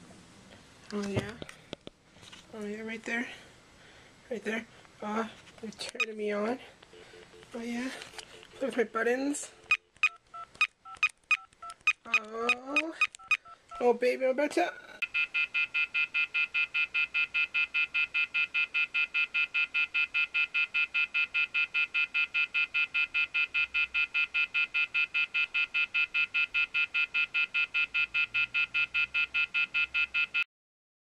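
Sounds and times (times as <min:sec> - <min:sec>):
telephone handset beeping rapidly: 0:09.6 - 0:13.8, 0:15.0 - 0:30.4.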